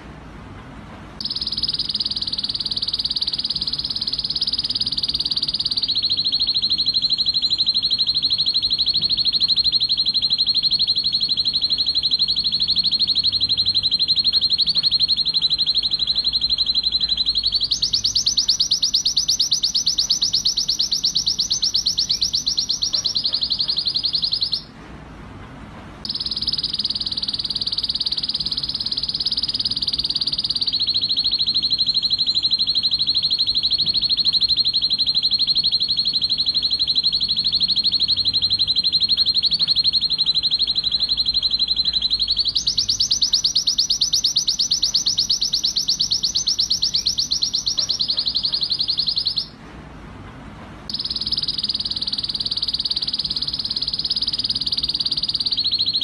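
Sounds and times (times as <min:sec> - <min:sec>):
canary singing fast trills: 0:01.2 - 0:24.8, 0:26.0 - 0:49.6, 0:50.9 - 0:56.0.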